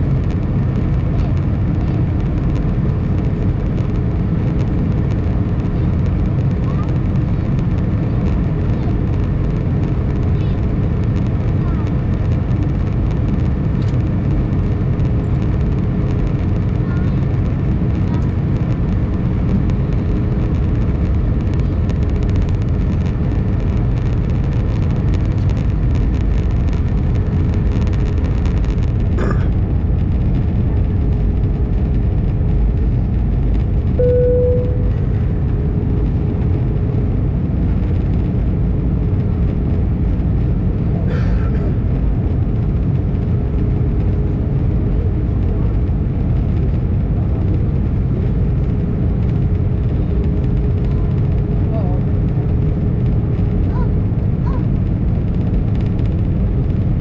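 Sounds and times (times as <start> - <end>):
aircraft engine drone: 0.0 - 57.0
faint steady hum: 33.8 - 37.9
short faint tone: 34.0 - 35.4.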